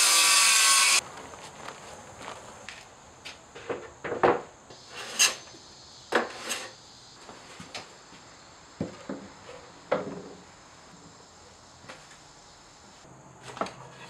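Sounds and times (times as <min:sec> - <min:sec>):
wooden panels knocking and scraping: 0:03.6 - 0:05.3, 0:08.8 - 0:10.4.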